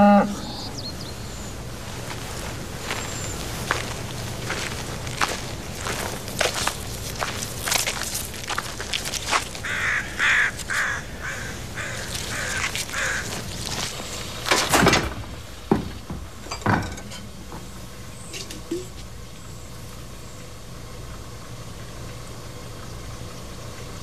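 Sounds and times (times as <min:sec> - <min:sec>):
footsteps on gravel: 0:01.7 - 0:14.6
crow cawing: 0:09.6 - 0:13.8.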